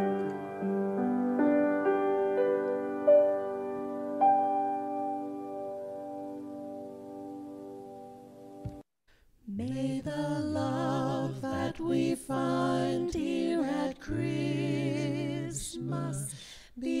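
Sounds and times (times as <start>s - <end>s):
keyboard chord: 0.0s - 8.8s
person singing with vibrato: 9.4s - 17.0s.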